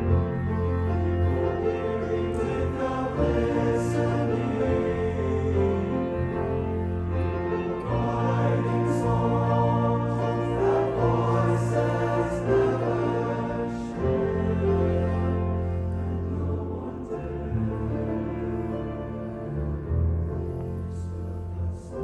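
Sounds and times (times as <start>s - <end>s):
mixed choir singing: 0.0s - 19.0s
piano: 0.0s - 22.0s.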